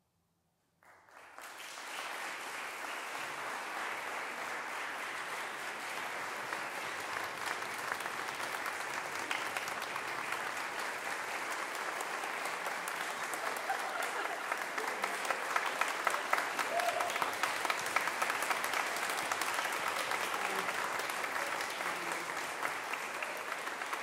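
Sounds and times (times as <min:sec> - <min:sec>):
audience applause: 0:00.8 - 0:24.0.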